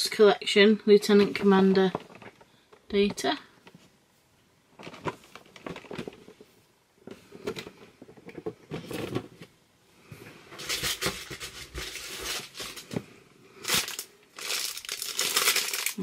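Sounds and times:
packaging rustling: 4.7 - 6.5, 10.6 - 13.0, 13.6 - 16.0.

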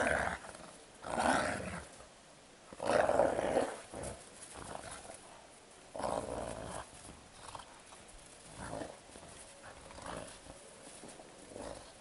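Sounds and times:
wolves growling: 0.0 - 2.0, 2.7 - 12.0
wolves scuffling: 0.0 - 12.0.

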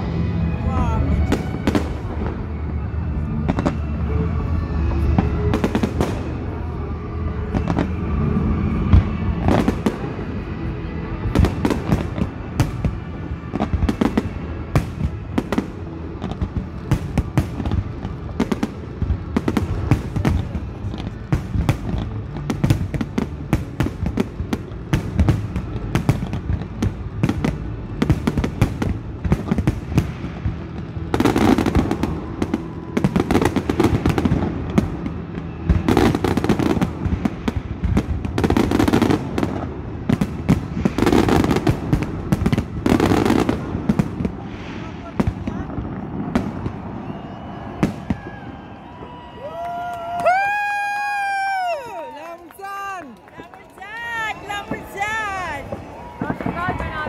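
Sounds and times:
music playing: 0.0 - 44.1
ground fountain fireworks firing: 0.0 - 57.0.

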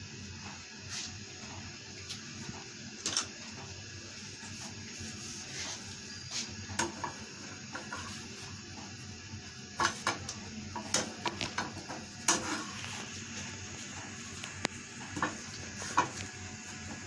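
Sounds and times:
spatula scraping frying pan: 12.3 - 12.8.

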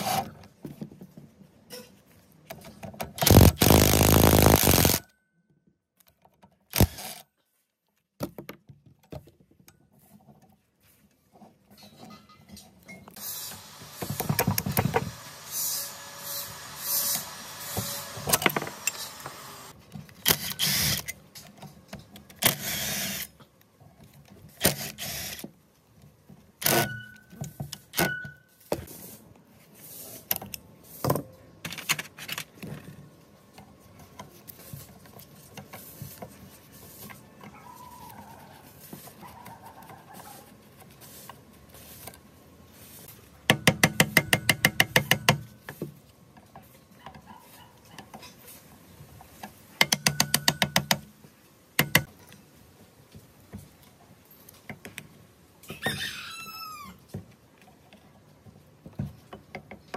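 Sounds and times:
metal tool clinks and scrapes: 11.6 - 13.2.

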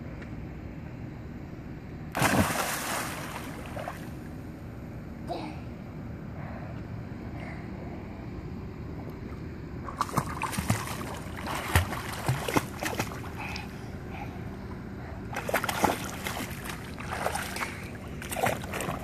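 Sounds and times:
child splashing in pool water: 10.0 - 13.3.

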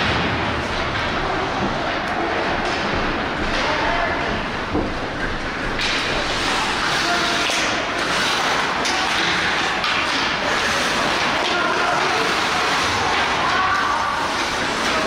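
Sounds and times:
hockey stick hitting puck: 4.7 - 15.0
skate blades scraping ice: 5.5 - 15.0
faint players shouting: 10.4 - 15.0.

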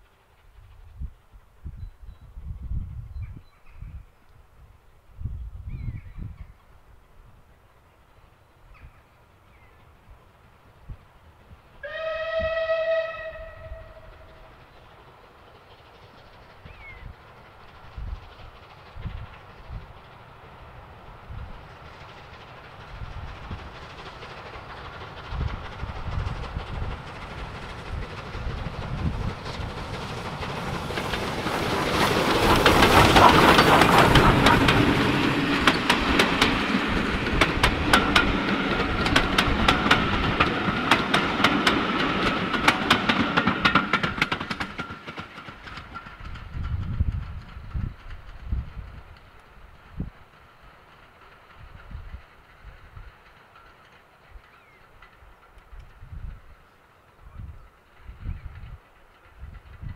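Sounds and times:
steam locomotive passing: 0.0 - 59.9
wheels clattering over rail joints: 21.6 - 56.2.

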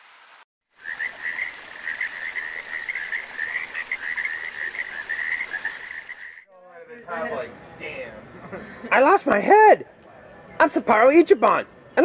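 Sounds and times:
frogs chorus trilling: 0.8 - 6.5.

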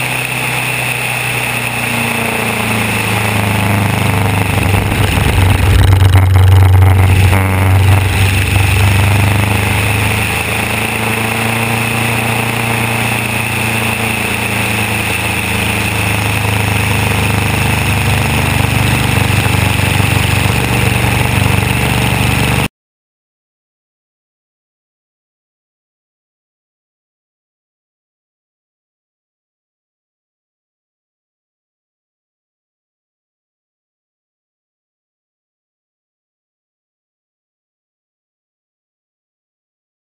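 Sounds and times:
light aircraft piston engine running: 0.0 - 22.7
wind rushing over microphone: 2.8 - 12.4.

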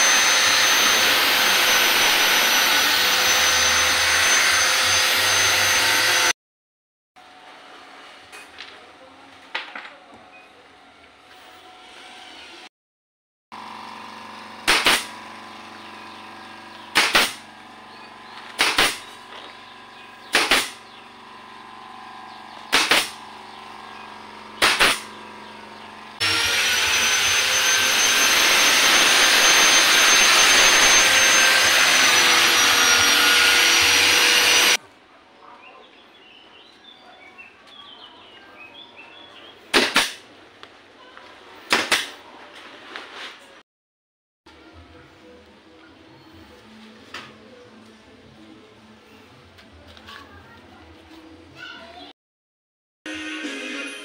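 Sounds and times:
angle grinder whining: 0.0 - 6.4, 13.6 - 34.8
nail gun firing: 14.6 - 15.2, 16.9 - 17.5, 18.5 - 19.2, 20.2 - 20.9, 22.6 - 23.3, 24.6 - 25.2, 39.7 - 40.3, 41.7 - 42.2.

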